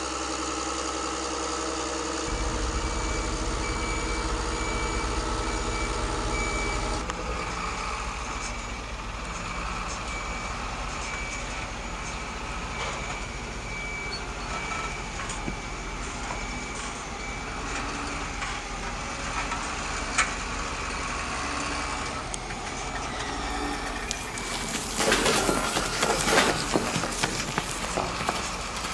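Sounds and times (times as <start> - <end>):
simulated engine sound: 0.0 - 28.9
reverse warning beep: 2.3 - 18.6, 22.9 - 28.5.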